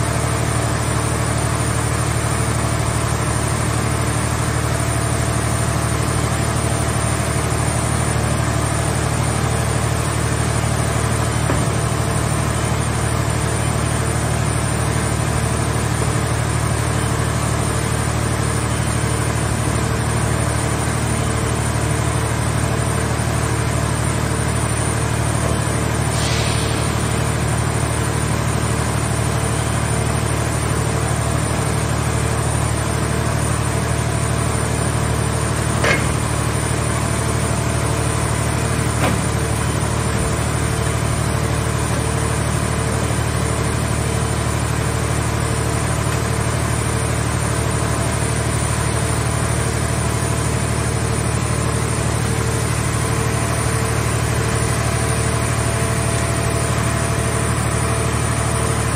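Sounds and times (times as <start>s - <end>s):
engine and hydraulics humming: 0.0s - 58.9s
sharp metal knocks: 35.8s - 36.3s.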